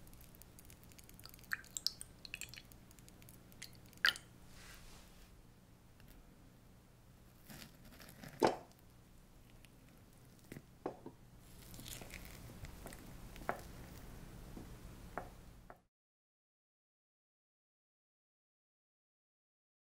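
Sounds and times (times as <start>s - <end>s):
spoon squishing dessert: 9.4s - 10.6s, 11.4s - 14.1s.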